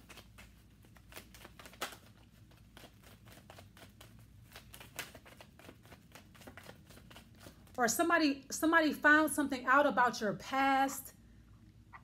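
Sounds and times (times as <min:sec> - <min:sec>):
cards being shuffled: 0:00.0 - 0:07.8.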